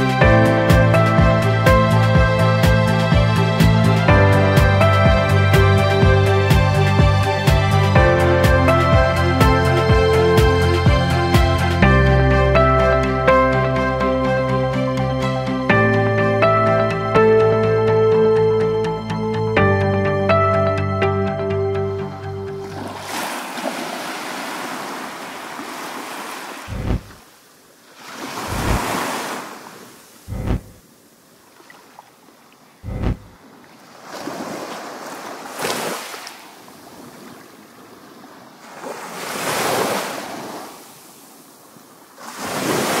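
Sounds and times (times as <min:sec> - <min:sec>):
surf washing onto a beach: 0:22.7 - 0:30.3, 0:33.6 - 0:43.0
low thumps: 0:26.7 - 0:27.2, 0:28.5 - 0:28.9, 0:30.3 - 0:30.8, 0:32.8 - 0:33.4.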